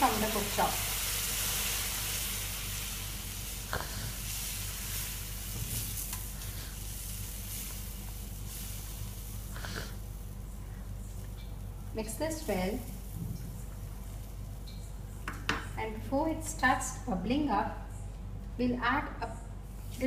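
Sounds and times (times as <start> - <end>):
food sizzling in a pan: 0.0 - 10.4.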